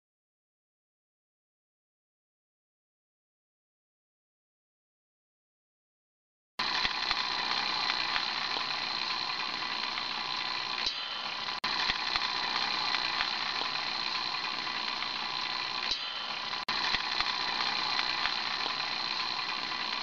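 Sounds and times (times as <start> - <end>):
machine hum with high whine: 6.6 - 20.0.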